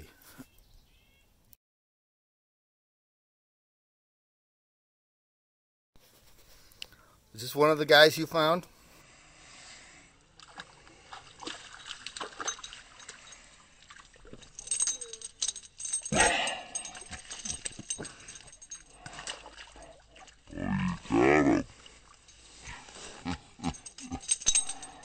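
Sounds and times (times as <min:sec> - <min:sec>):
dog splashing in shallow water: 0:10.4 - 0:14.6, 0:19.0 - 0:20.6.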